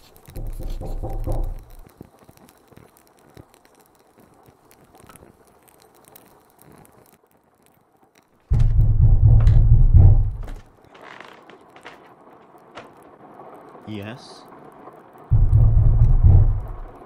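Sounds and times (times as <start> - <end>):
pen nib scratching on paper: 0.0 - 1.8
loud low rumble: 8.5 - 10.6, 15.3 - 17.0.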